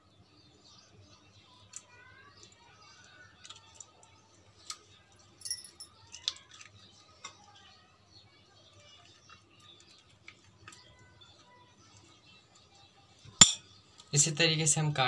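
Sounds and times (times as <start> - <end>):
metal spoon clinking on glass bowl: 5.4 - 6.0, 13.4 - 13.6.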